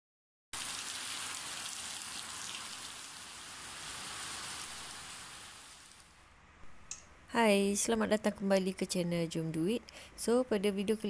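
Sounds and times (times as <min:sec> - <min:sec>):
rain falling on wet ground: 0:00.6 - 0:06.1.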